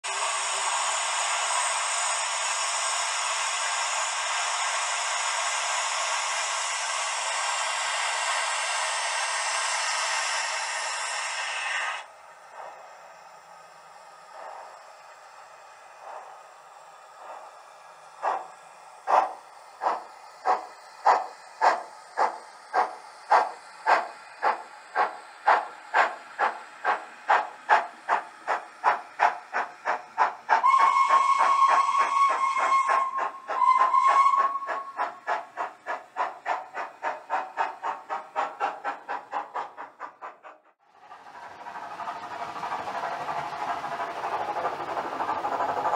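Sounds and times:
model steam locomotive chuffing: 0.0s - 45.9s
locomotive whistle: 30.6s - 35.4s.

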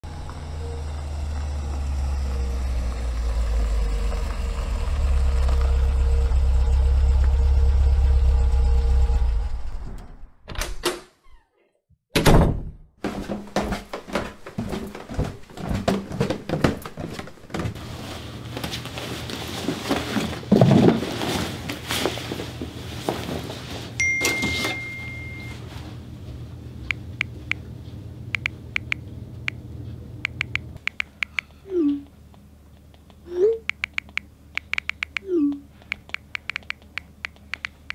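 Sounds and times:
door hit: 12.1s - 14.2s
knocks and clicks: 30.2s - 31.5s, 32.8s - 35.2s, 35.9s - 37.9s.

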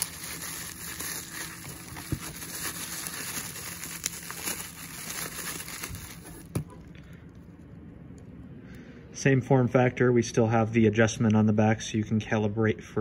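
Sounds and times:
bubble wrap crinkling: 0.0s - 6.8s.

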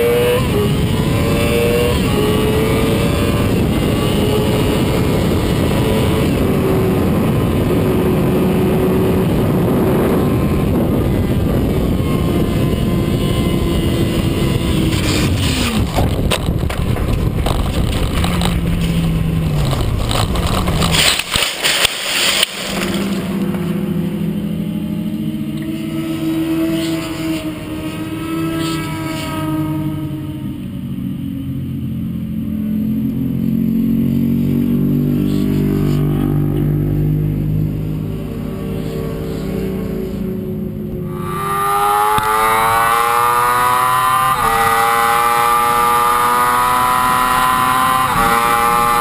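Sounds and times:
wind noise: 0.0s - 29.4s, 34.0s - 49.0s
motorcycle engine at high revs: 0.0s - 49.0s
knocks and scrapes: 14.9s - 23.5s
motorcycle crashing into gravel: 15.0s - 23.3s.

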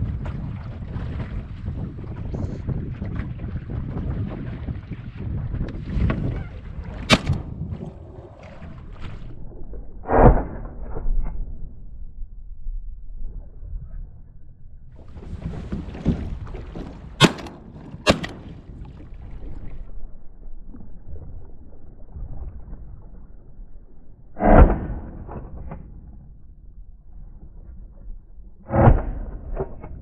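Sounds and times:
water lapping at boat: 0.0s - 9.6s, 15.0s - 24.3s
wind: 0.0s - 30.0s
sharp clicks: 7.1s - 7.5s, 17.2s - 18.6s.

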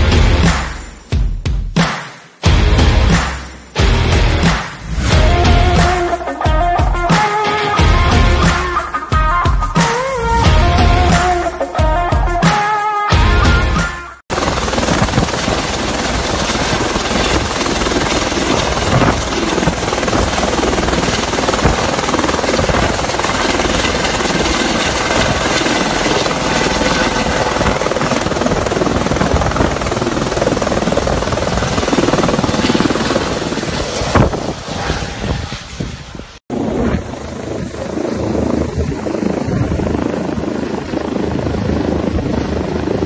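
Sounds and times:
helicopter rotor and turbine: 13.5s - 43.0s.

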